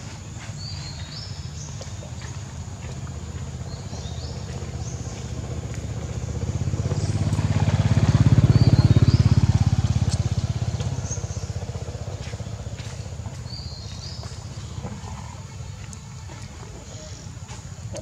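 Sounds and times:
vehicle engine passing: 0:02.2 - 0:16.6.

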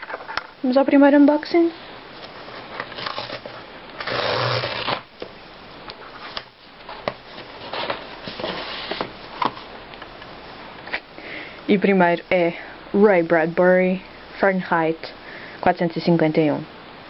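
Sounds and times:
cardboard rustling and scraping: 0:02.2 - 0:05.1, 0:06.0 - 0:09.7
cardboard tear strip ripping: 0:02.9 - 0:05.1.

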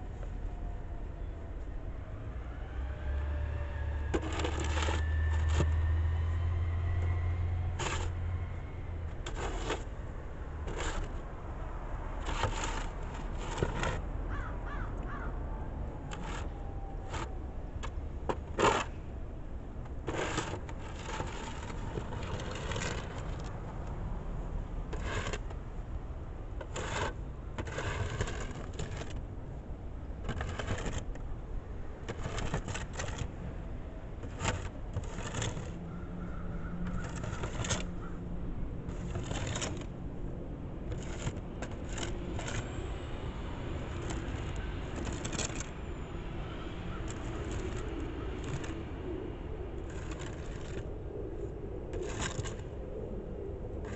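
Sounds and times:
snow shovel scraping concrete: 0:04.2 - 0:05.8, 0:07.7 - 0:08.2, 0:09.2 - 0:10.0, 0:10.6 - 0:11.2, 0:12.2 - 0:14.1, 0:16.1 - 0:19.0, 0:20.0 - 0:23.5, 0:24.9 - 0:25.6, 0:26.6 - 0:29.2, 0:30.2 - 0:31.2, 0:32.1 - 0:33.3, 0:34.2 - 0:35.8, 0:36.9 - 0:37.9, 0:38.9 - 0:39.9, 0:40.9 - 0:42.8, 0:43.9 - 0:45.7, 0:46.9 - 0:48.8, 0:49.8 - 0:50.9, 0:52.0 - 0:52.7.

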